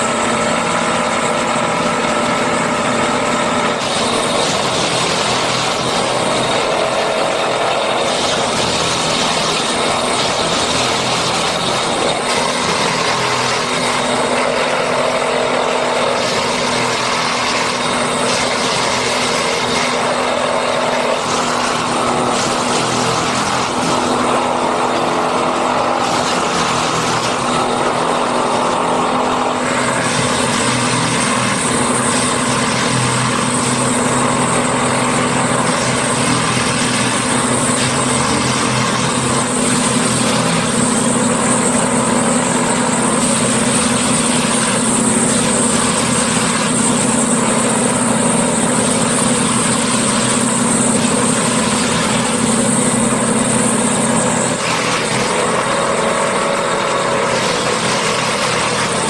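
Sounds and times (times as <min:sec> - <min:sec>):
track maintenance machine running: 0:00.0 - 0:59.0.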